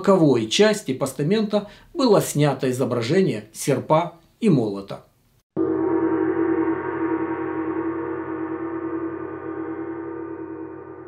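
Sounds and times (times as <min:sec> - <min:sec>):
gong ringing: 0:05.6 - 0:11.0.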